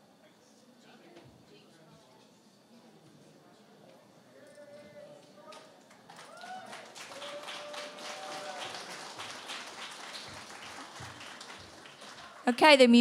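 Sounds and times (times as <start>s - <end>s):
faint voices talking: 0.0s - 6.1s
audience applauding: 5.9s - 13.0s.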